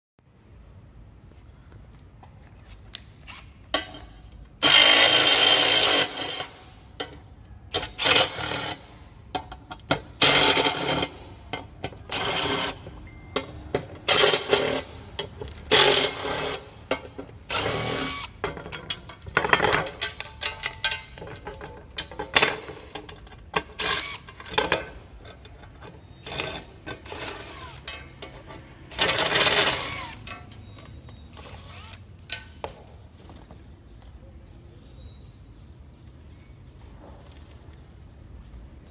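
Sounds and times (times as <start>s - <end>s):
impact driver hammering screws: 4.6s - 6.6s, 29.0s - 30.3s.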